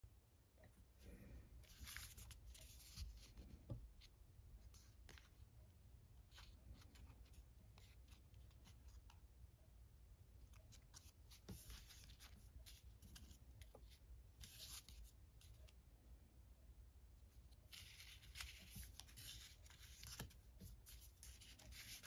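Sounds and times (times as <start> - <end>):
paper rustling and crinkling: 1.6 - 3.5, 17.6 - 22.0.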